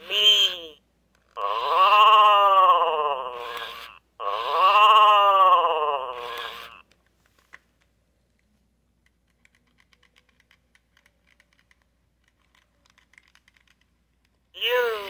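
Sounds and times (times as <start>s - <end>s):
electronic toy voice: 0.0s - 0.8s, 1.4s - 6.8s, 14.6s - 15.0s
toy handling clicks and taps: 6.3s - 14.5s.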